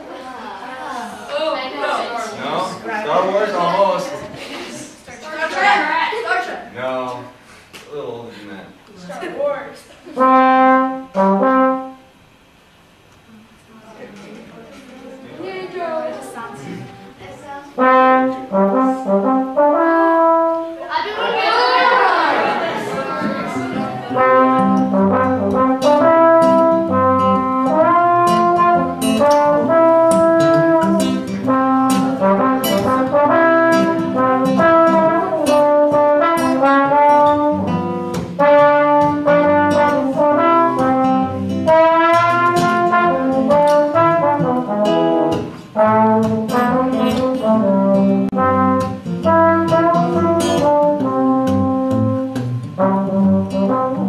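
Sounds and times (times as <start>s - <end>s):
trombone melody: 10.1s - 12.2s, 17.8s - 20.8s, 23.9s - 54.0s
strummed acoustic guitar: 22.4s - 54.0s.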